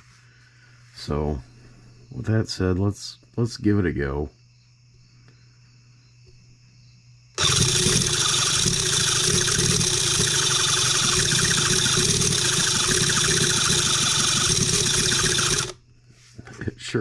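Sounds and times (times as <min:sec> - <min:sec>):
engine cranking on electric starter: 0:07.4 - 0:15.8.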